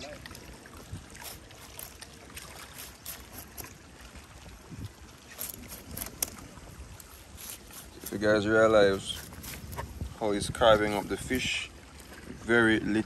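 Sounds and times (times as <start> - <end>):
knife cutting fish: 2.6 - 3.7, 7.0 - 9.9
wind rumble on microphone: 4.1 - 13.0.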